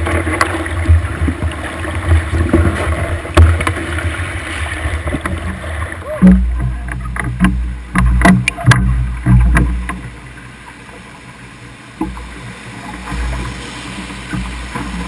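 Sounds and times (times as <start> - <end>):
oars knocking in oarlocks: 0.0 - 10.1
rushing river water: 0.0 - 15.0.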